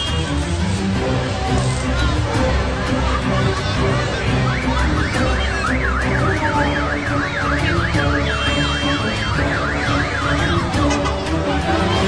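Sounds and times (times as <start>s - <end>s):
background music with beat: 0.0s - 12.0s
siren wailing: 4.3s - 10.8s.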